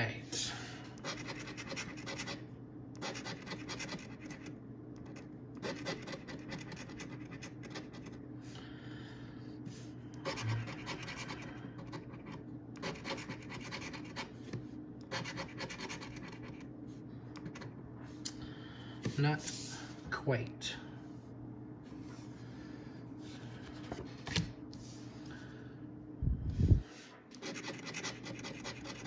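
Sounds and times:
coin scratching lottery ticket: 0:01.0 - 0:02.4, 0:03.0 - 0:08.2, 0:10.2 - 0:14.3, 0:15.1 - 0:16.7, 0:27.4 - 0:29.0.

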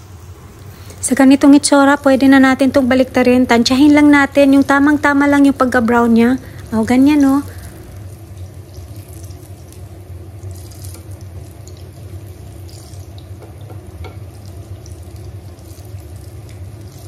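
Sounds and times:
fritters sizzling in oil: 0:00.0 - 0:17.0
oil crackling and popping: 0:06.4 - 0:17.0.

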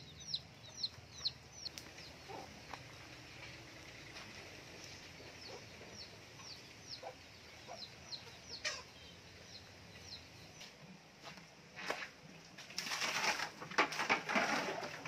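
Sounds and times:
chickens clucking: 0:00.0 - 0:10.8.

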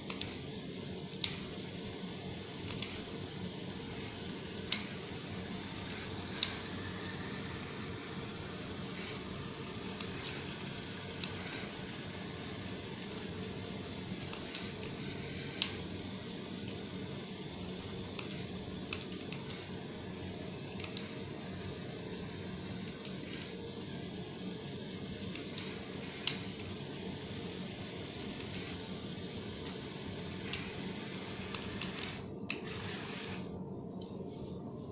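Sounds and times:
toy car motors whirring: 0:01.1 - 0:17.0, 0:20.7 - 0:23.6, 0:24.8 - 0:33.5.

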